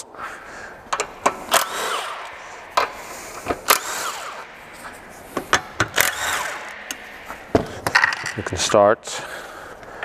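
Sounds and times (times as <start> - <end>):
impact gun undoing nuts: 0.9 - 4.5, 5.3 - 8.5.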